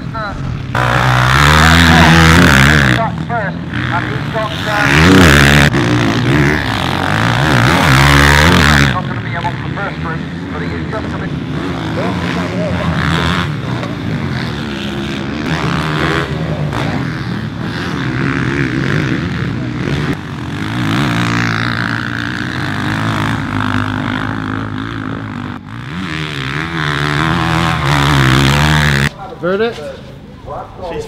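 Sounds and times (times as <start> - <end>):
motocross engines revving: 0.0 - 30.6.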